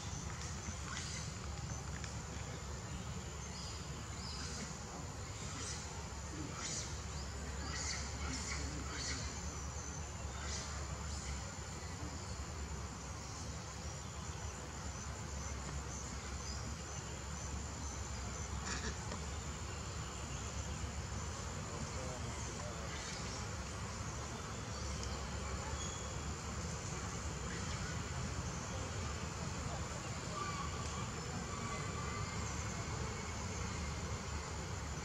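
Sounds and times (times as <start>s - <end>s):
insects trilling: 0.0s - 35.0s
outdoor hiss: 0.0s - 35.0s
faint tick: 25.0s - 25.2s.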